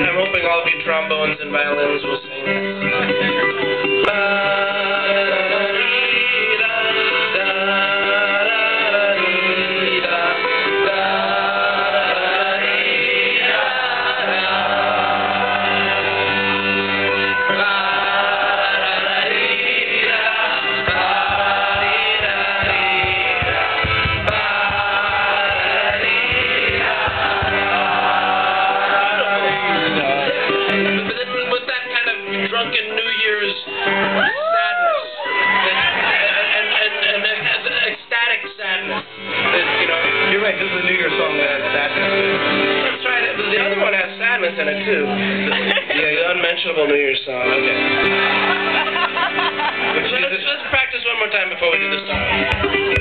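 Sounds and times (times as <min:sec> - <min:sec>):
accordion: 0:00.0 - 0:34.3, 0:35.2 - 0:53.0
acoustic guitar: 0:00.0 - 0:53.0
audience singing together: 0:04.0 - 0:31.2, 0:35.7 - 0:38.0, 0:45.3 - 0:46.0, 0:47.9 - 0:50.2.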